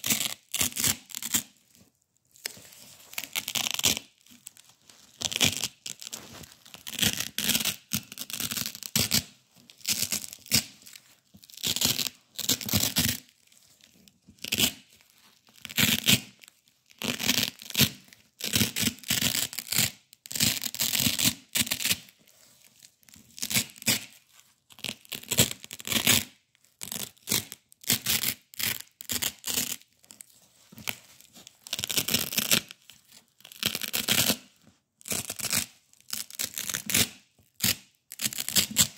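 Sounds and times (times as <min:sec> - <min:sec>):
velcro tape ripping: 0:00.0 - 0:01.5, 0:03.1 - 0:04.1, 0:31.6 - 0:32.8, 0:33.4 - 0:38.9.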